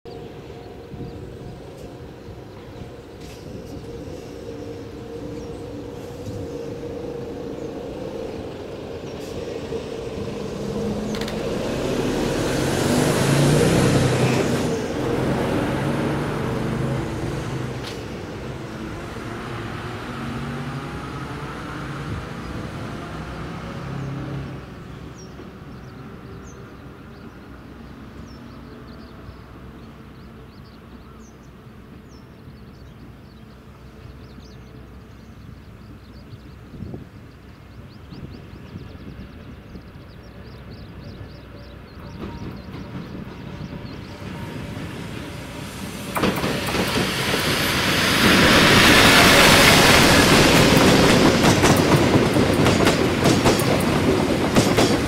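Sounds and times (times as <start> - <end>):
distant traffic noise: 0.1 - 55.0
vehicle passing by: 10.4 - 17.7.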